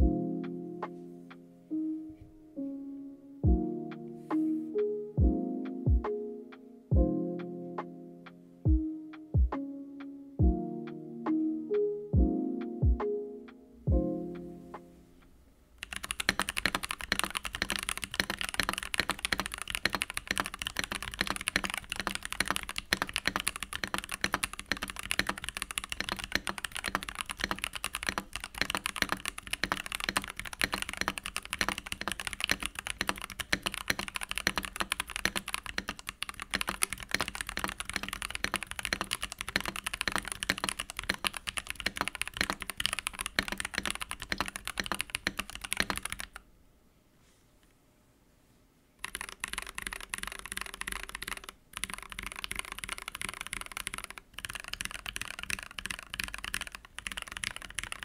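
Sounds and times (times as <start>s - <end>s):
mechanical keyboard typing: 15.8s - 46.4s, 49.0s - 58.0s.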